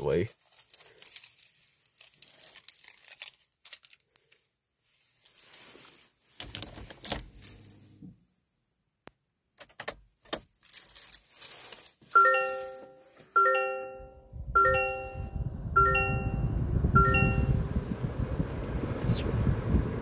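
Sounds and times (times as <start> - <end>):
keys jangling: 0.3 - 4.4, 10.6 - 12.0
low rumble: 14.3 - 20.0.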